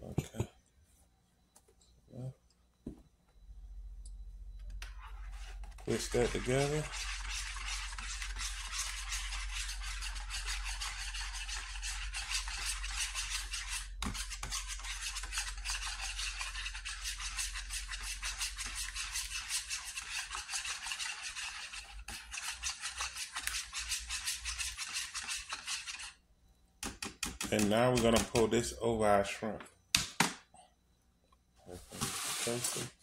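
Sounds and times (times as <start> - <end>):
whisk beating in plastic bowl: 5.8 - 26.1.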